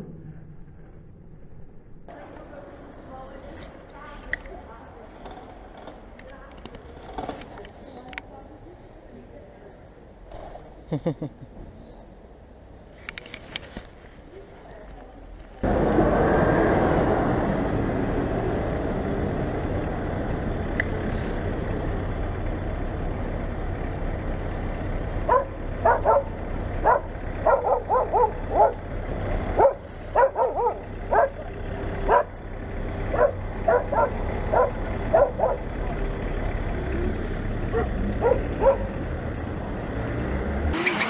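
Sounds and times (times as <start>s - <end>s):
street traffic noise: 2.1s - 41.0s
dog barking: 25.3s - 28.8s, 29.6s - 31.5s, 32.1s - 32.4s, 33.1s - 35.7s, 37.7s - 39.0s.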